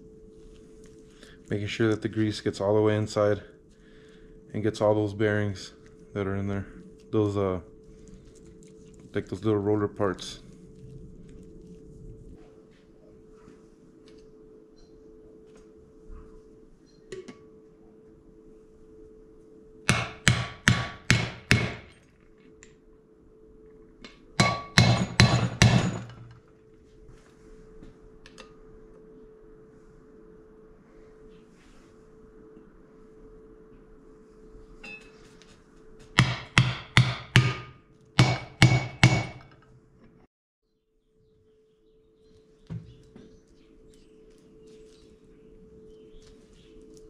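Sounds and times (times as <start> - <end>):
hammer striking metal: 19.9 - 21.9, 24.4 - 26.3, 36.2 - 39.6.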